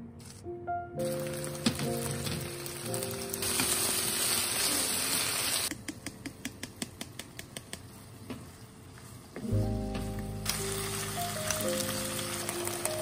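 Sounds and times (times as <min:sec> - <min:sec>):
food sizzling in a frying pan: 0:01.1 - 0:05.7, 0:08.2 - 0:13.0.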